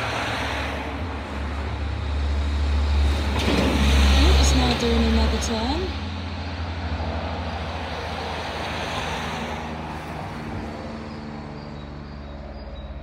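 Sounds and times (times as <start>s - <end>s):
propeller plane droning overhead: 0.0s - 13.0s.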